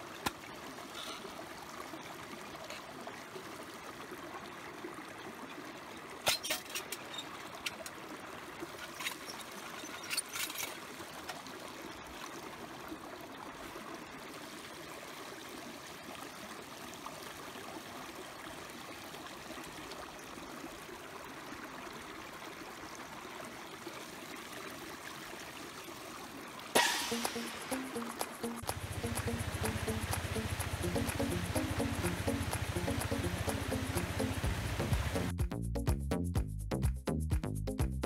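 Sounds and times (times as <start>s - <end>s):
steady rushing background noise: 26.8s - 35.3s.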